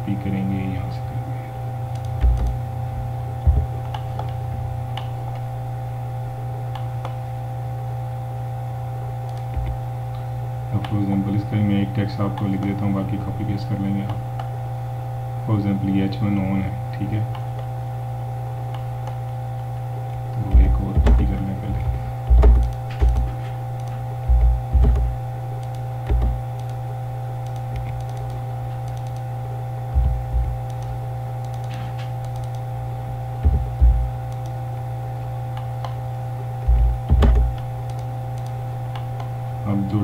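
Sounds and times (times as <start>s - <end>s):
electrical hum: 0.0s - 40.0s
keyboard typing: 1.9s - 2.6s, 20.4s - 26.8s, 27.4s - 29.3s, 29.9s - 32.6s, 33.4s - 34.6s, 36.6s - 39.1s
mouse clicks: 1.9s - 2.6s, 3.8s - 5.4s, 9.3s - 9.8s, 22.4s - 26.8s, 27.4s - 29.3s, 30.0s - 32.6s, 34.3s - 34.6s, 36.7s - 39.3s.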